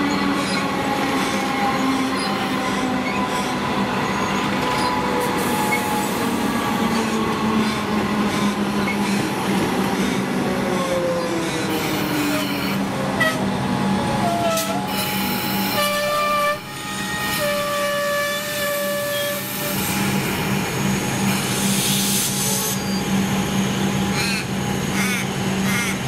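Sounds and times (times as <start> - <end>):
train horn blasts: 11.8 - 13.5, 14.2 - 19.8.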